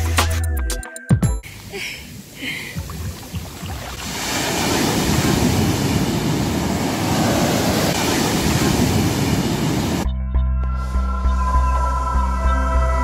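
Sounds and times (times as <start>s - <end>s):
sea surf washing on sand: 2.7s - 10.0s.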